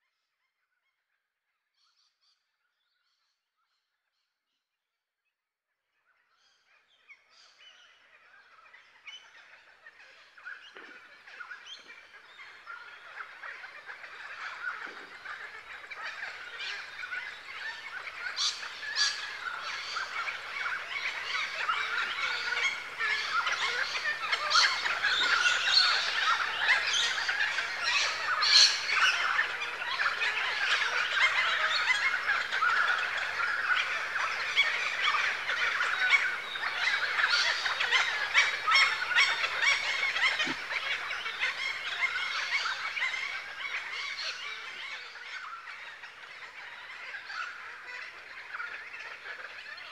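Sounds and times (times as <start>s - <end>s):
flock of birds honking: 12.5s - 49.9s.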